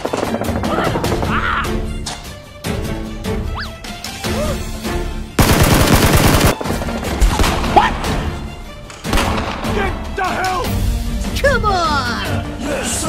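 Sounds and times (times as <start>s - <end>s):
automatic gunfire burst: 5.4s - 6.8s.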